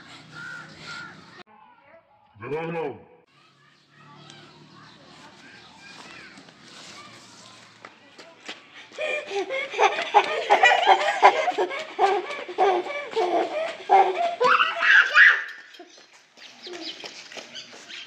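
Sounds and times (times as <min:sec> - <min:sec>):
young child laughing: 0:09.0 - 0:16.0.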